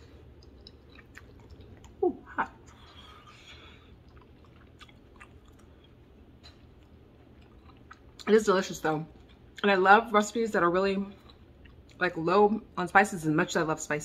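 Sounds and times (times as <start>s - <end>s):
person chewing food: 0.0s - 8.3s, 9.1s - 9.7s, 11.1s - 12.0s.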